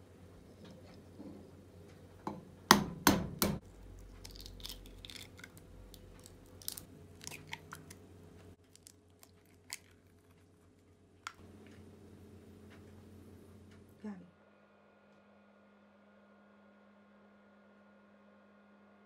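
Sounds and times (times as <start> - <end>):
eggshells cracking on a bowl: 3.6 - 10.6
eggshells crackling: 3.7 - 11.4.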